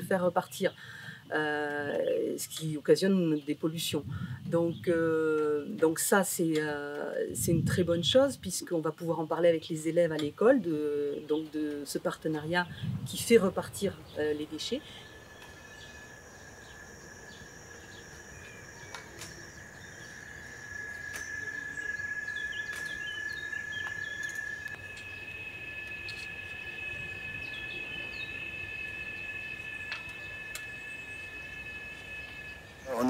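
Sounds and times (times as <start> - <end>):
high-pitched insect drones: 9.0 - 33.0.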